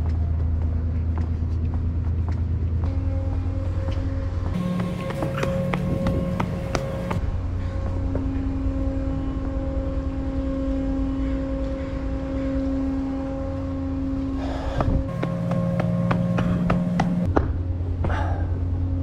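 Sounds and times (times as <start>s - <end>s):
droning hum: 0.0s - 19.0s
ferry low rumble: 0.0s - 19.0s.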